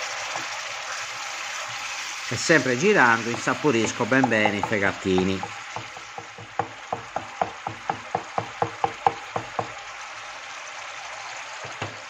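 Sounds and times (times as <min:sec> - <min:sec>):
food sizzling: 0:00.0 - 0:12.0
wooden spoon knocking on pan: 0:03.1 - 0:09.8, 0:11.6 - 0:12.0.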